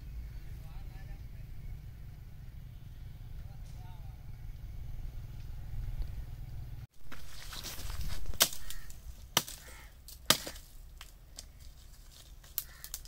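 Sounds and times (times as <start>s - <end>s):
blade scraping through dirt: 6.9s - 12.8s
hoe striking hard earth: 7.0s - 11.6s.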